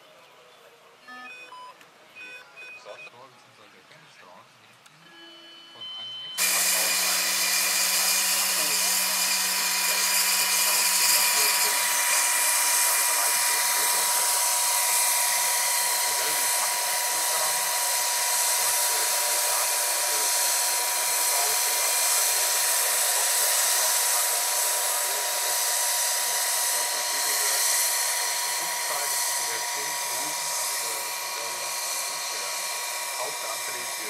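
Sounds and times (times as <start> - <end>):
model helicopter motor whine: 6.4 - 34.0.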